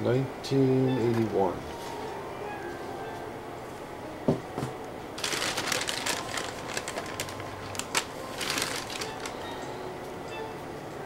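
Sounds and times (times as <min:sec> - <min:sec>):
plastic bag rustling: 0:05.2 - 0:09.6.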